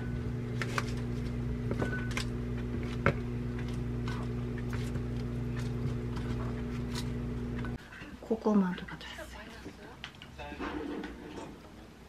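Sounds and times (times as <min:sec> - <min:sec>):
microwave oven humming: 0:00.0 - 0:07.8.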